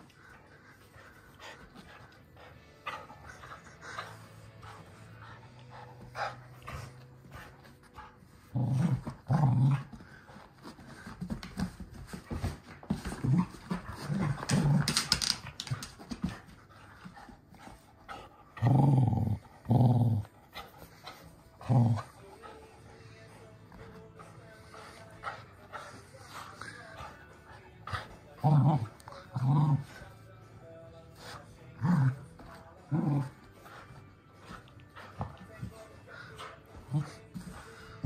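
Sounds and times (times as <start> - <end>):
dog growling: 8.4 - 10.1, 18.1 - 20.6, 21.5 - 22.7, 24.8 - 30.2, 31.6 - 38.0.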